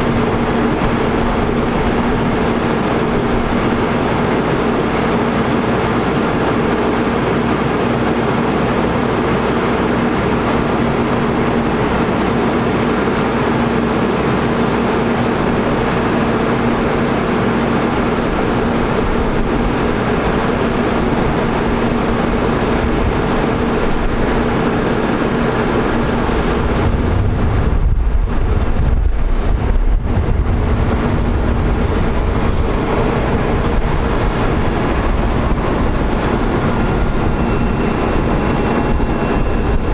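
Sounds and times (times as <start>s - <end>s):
truck engine running: 0.0s - 39.9s
deep rumble: 22.0s - 39.9s.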